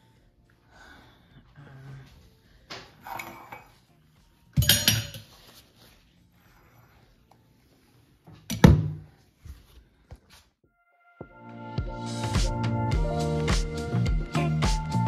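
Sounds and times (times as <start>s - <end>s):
dishes and utensils clattering: 2.9s - 3.9s, 4.6s - 5.5s.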